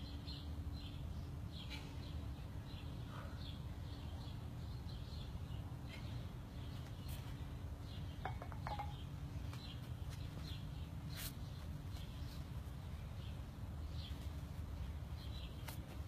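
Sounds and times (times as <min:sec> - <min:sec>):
small birds chirping: 0:00.0 - 0:16.0
dumbbells clinking down: 0:08.2 - 0:09.1.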